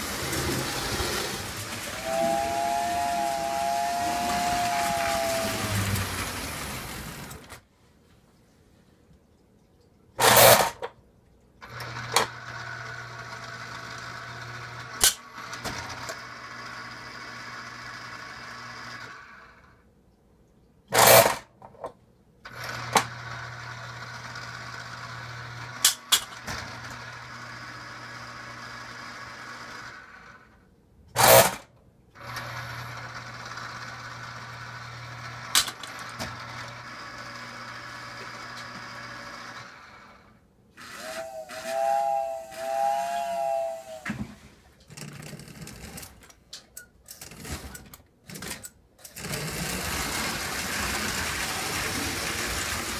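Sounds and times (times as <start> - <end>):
electric motor running: 0.0 - 7.5, 40.8 - 44.0.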